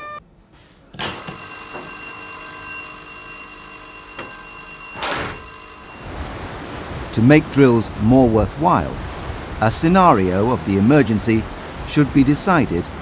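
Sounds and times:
electric alarm bell ringing: 0:01.0 - 0:06.1.

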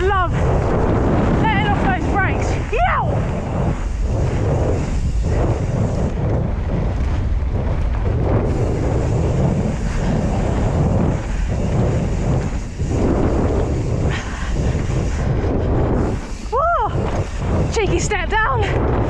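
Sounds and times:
tyres rumbling on dirt: 0:00.0 - 0:19.0
wind buffeting microphone: 0:00.0 - 0:19.0.

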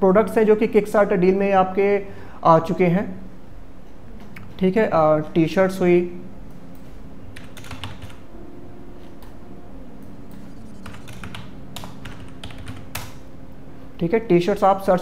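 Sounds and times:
faint steady hum: 0:00.0 - 0:15.0
keyboard typing: 0:07.4 - 0:08.2, 0:10.0 - 0:13.3.

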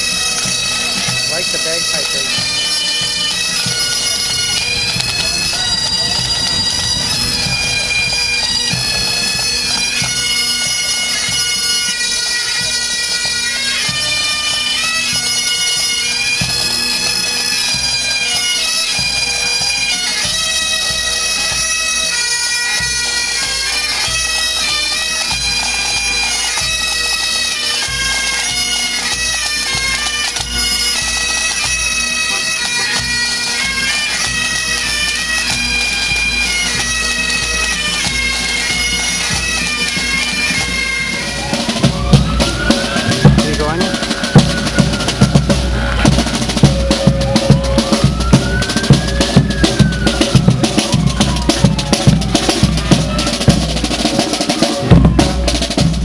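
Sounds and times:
drums beating: 0:00.0 - 0:11.7, 0:33.6 - 0:56.0
bagpipes playing a march: 0:00.0 - 0:56.0.

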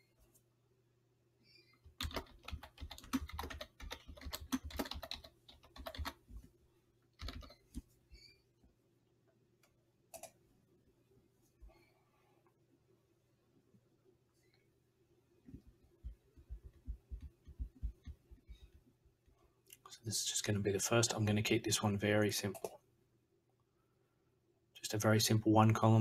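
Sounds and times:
typing on computer keyboard: 0:01.8 - 0:06.2, 0:07.2 - 0:07.8, 0:10.1 - 0:10.3.

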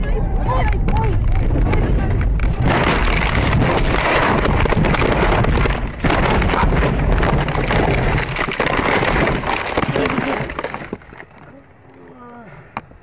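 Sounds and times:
metal crunching and rattling: 0:02.4 - 0:11.9
glass breaking: 0:02.6 - 0:11.4.

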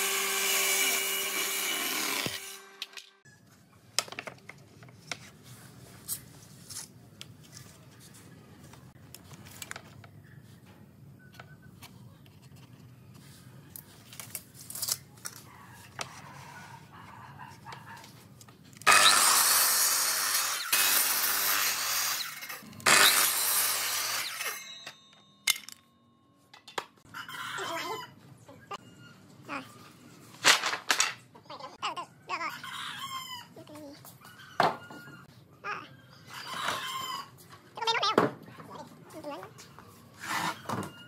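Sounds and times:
miter saw cutting boards: 0:00.0 - 0:03.0, 0:18.8 - 0:24.6.

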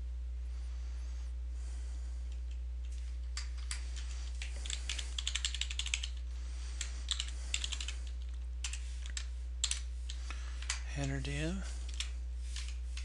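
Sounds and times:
steady low hum: 0:00.0 - 0:13.0
computer keyboard typing: 0:03.4 - 0:06.2, 0:07.0 - 0:12.8.

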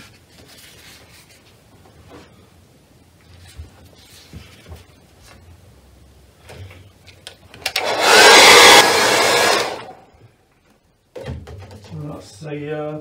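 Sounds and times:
hair dryer blowing: 0:07.6 - 0:10.0.

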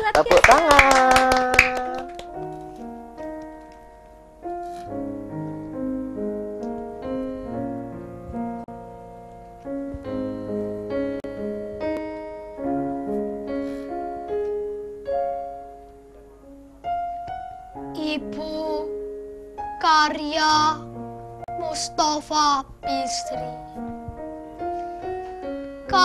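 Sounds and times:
electronic keyboard slow melody: 0:01.9 - 0:26.0.

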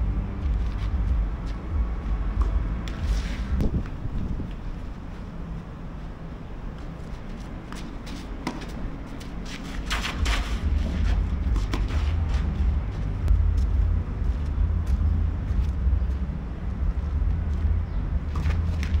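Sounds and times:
steady low rumble: 0:00.0 - 0:19.0
racket strikes and ball bounces: 0:02.3 - 0:03.9, 0:07.7 - 0:13.1.

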